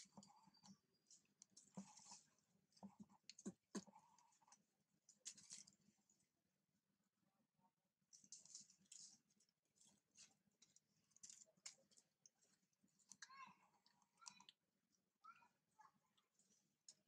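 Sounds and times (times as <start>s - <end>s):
faint clicks and rustles: 0.0s - 6.4s, 8.1s - 15.0s.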